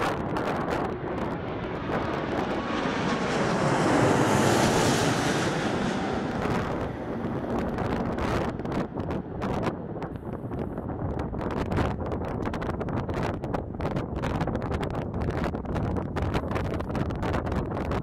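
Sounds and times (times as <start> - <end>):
jet airliner passing overhead: 0.0 - 12.5
wind buffeting microphone: 0.0 - 18.0.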